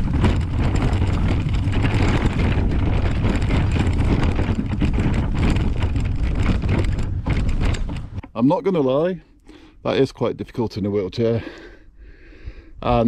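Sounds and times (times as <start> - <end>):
wind on microphone: 0.0 - 8.2
wheelchair rolling on dirt path: 0.0 - 9.2.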